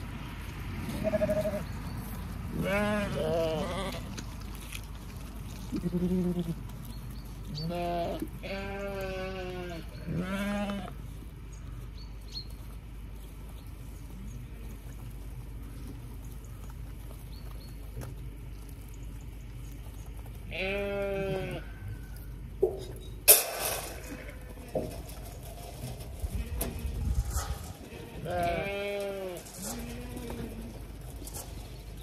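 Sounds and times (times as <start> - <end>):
sheep bleating: 0.9 - 1.7, 2.6 - 4.1, 5.7 - 6.6, 7.5 - 10.9, 20.5 - 21.8, 27.9 - 30.8.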